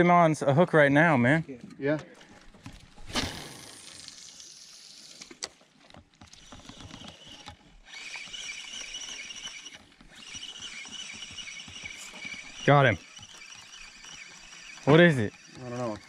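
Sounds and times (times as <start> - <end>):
fishing reel whirring: 3.1 - 5.4, 6.2 - 16.0.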